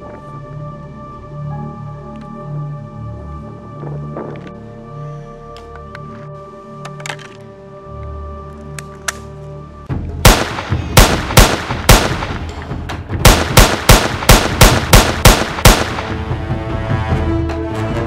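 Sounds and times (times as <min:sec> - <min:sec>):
background music: 0:00.0 - 0:18.0
gunshots: 0:10.2 - 0:12.5, 0:13.2 - 0:16.3.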